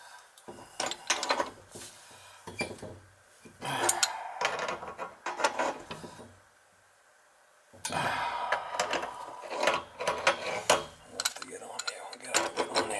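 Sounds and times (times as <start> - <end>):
wrench clinking on metal nuts: 8.8 - 12.9.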